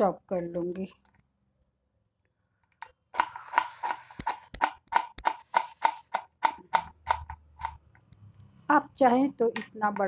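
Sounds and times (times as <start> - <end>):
knife chopping on wooden board: 3.2 - 7.8.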